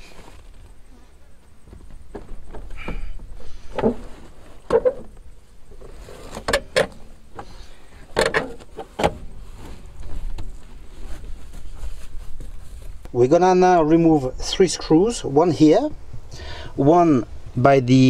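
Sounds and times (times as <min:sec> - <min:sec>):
seat cushion scraping: 0:00.0 - 0:00.8, 0:03.6 - 0:05.1, 0:05.8 - 0:06.5, 0:08.4 - 0:13.0.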